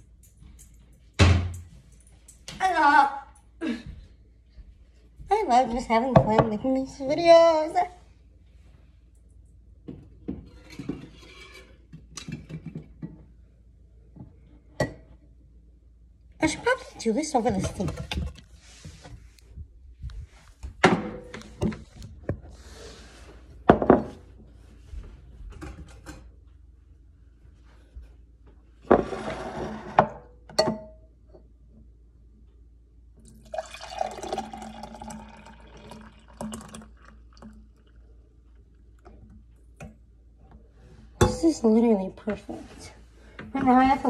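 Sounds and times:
drink pouring into glass: 33.2s - 38.1s.

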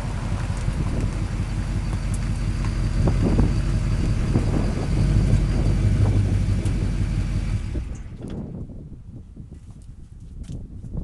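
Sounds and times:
diesel engine rumbling: 0.0s - 9.4s
turbocharger whistle: 0.9s - 7.0s.

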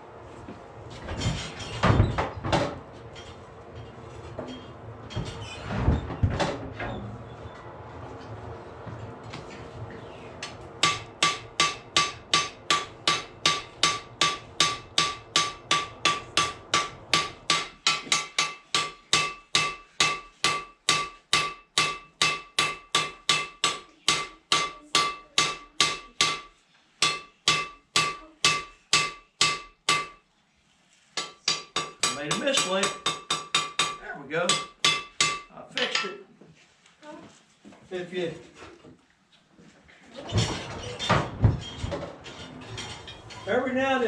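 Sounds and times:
hammer striking steel on anvil: 10.4s - 30.2s, 31.2s - 36.2s.

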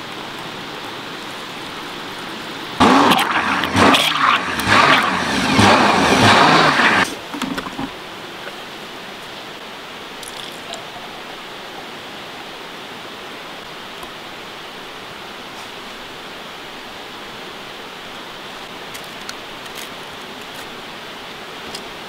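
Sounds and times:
river water rushing: 0.0s - 22.0s
loud machine noise: 2.8s - 7.2s.

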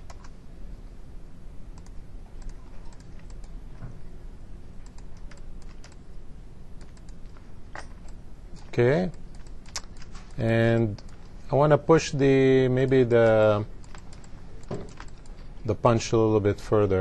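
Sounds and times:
keyboard and mouse clicking: 0.0s - 0.4s, 1.8s - 3.6s, 4.8s - 6.0s, 6.8s - 8.2s, 9.1s - 11.3s, 12.8s - 15.5s.

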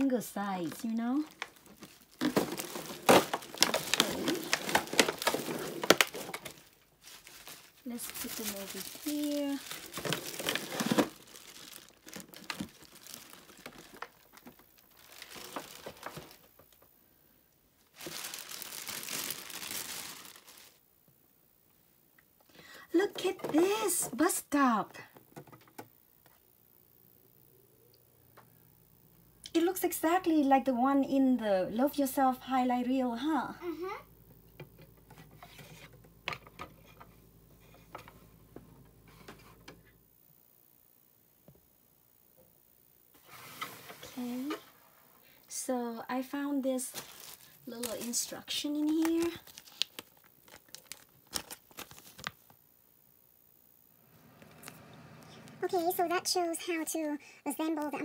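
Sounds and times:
plastic film crinkling: 0.0s - 16.9s, 17.8s - 20.8s, 46.3s - 52.6s
low hum: 53.0s - 56.6s.

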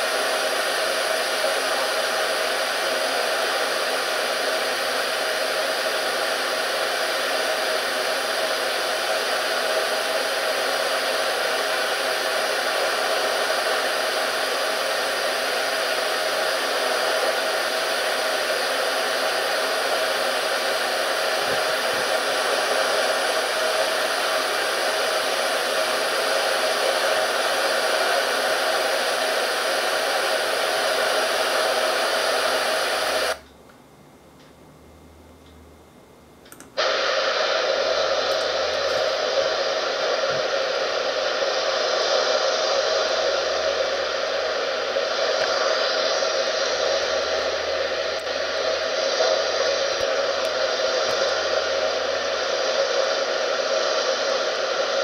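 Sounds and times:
steady rushing noise: 36.8s - 55.0s.

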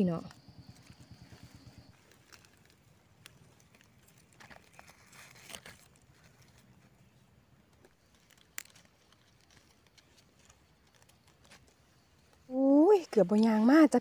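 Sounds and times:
knife scraping in leaf litter: 1.9s - 6.7s.

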